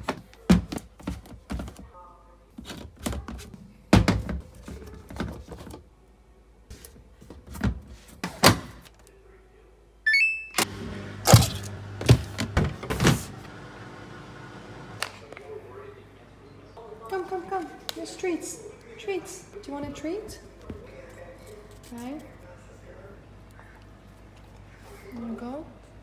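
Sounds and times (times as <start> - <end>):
electronic beeps: 10.1 - 10.6
washing machine humming: 10.6 - 15.0.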